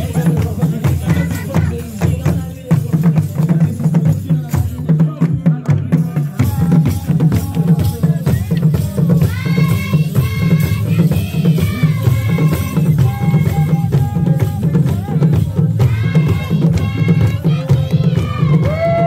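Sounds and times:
barrel drums beating: 0.0s - 19.0s
voices chanting: 6.1s - 19.0s.

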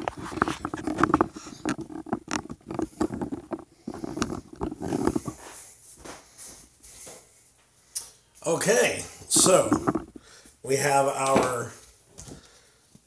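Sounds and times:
phone handling knocks and rubbing: 0.0s - 5.4s, 9.3s - 10.2s.

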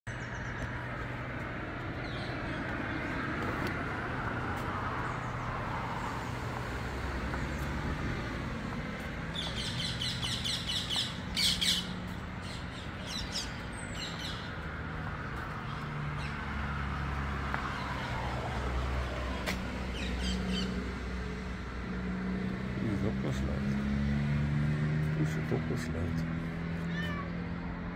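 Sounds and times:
birds calling: 0.1s - 3.8s, 4.8s - 21.4s.

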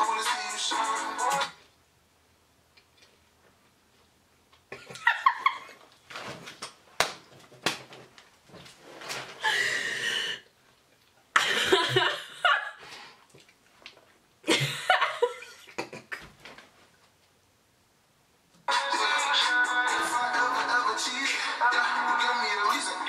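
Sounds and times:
woman laughing hard: 4.8s - 5.8s, 11.4s - 12.8s, 14.5s - 16.2s.

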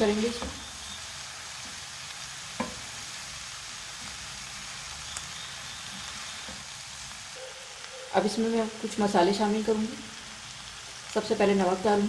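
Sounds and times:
low sizzle from pan: 0.0s - 12.0s
spoon knocking against pan: 2.6s - 2.8s.

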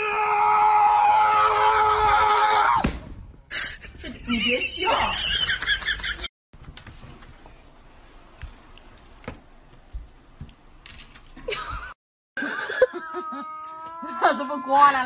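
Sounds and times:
light jingling: 6.6s - 11.9s.

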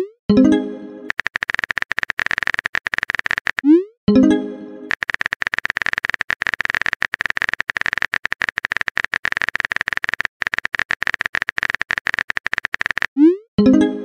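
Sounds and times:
phone keyboard typing clicks: 1.1s - 3.8s, 4.9s - 13.2s.

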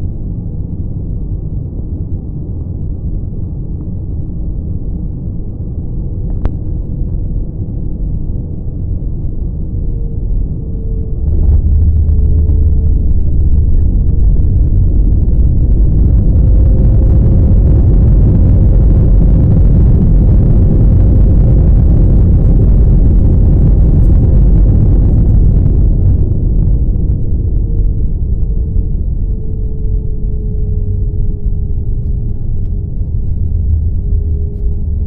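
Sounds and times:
wheels rumbling on runway: 9.4s - 35.0s
engine reverse thrust rush: 11.2s - 29.3s.

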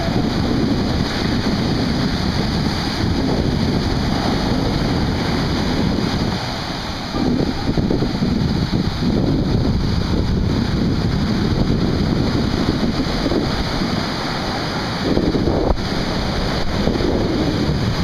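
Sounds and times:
surf washing up a beach: 0.0s - 18.0s
wind buffeting microphone: 0.0s - 18.0s.

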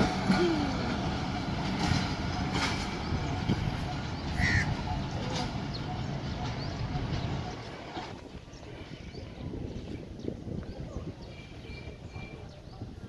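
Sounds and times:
wheels clacking over rail joints: 0.0s - 9.0s
train rumbling along track: 0.0s - 13.0s.

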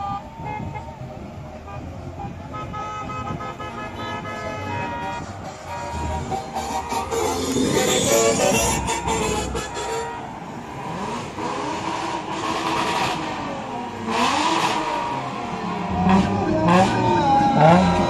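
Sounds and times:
cars driving slowly past: 1.0s - 18.0s
car engine accelerating: 5.0s - 18.0s.

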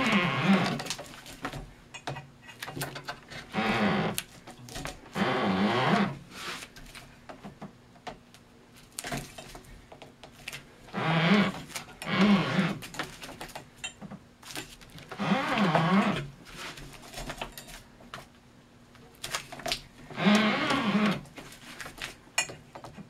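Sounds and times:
twine groaning under tension: 0.0s - 0.8s.

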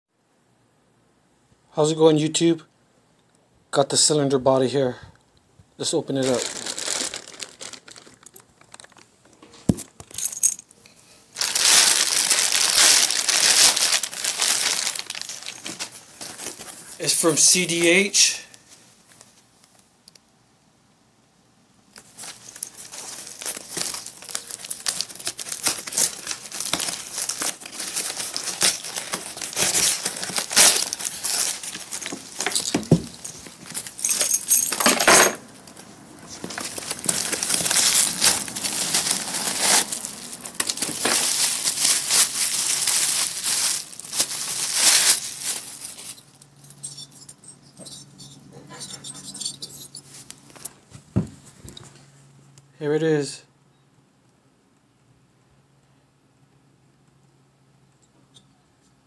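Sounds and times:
cardboard box being torn open: 23.3s - 32.5s.

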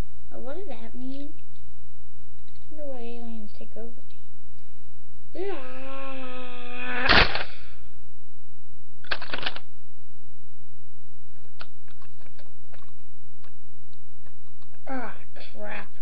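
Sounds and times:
plastic bricks crashing down: 9.1s - 9.6s.

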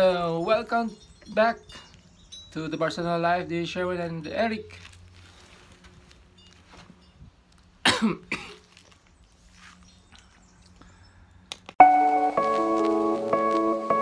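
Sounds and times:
person coughing: 7.8s - 8.7s
music with sustained notes: 10.9s - 14.0s.

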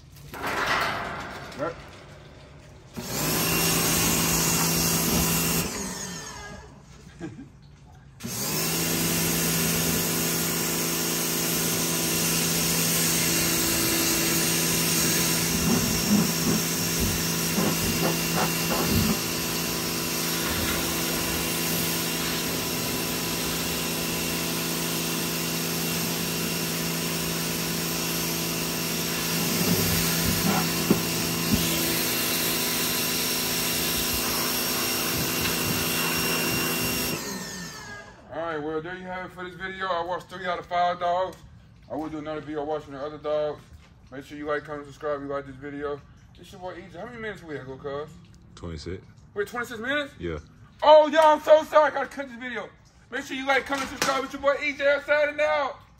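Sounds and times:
pressure washer motor humming: 0.0s - 7.0s, 8.2s - 38.4s
water spattering: 0.0s - 38.3s, 49.0s - 55.9s
water jet hissing on concrete: 1.2s - 6.7s, 8.2s - 38.2s.

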